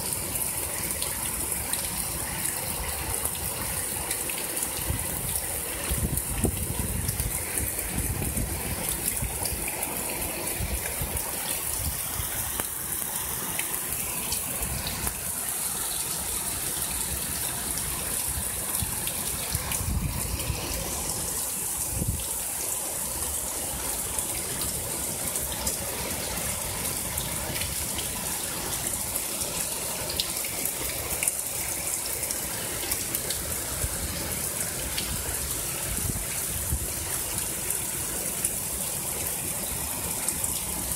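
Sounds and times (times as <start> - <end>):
heavy rain pouring: 0.0 - 40.9.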